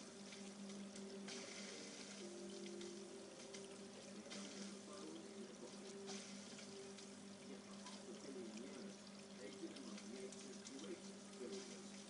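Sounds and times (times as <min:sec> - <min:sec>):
aquarium pump hum: 0:00.0 - 0:12.0
water running from filter: 0:00.0 - 0:12.0.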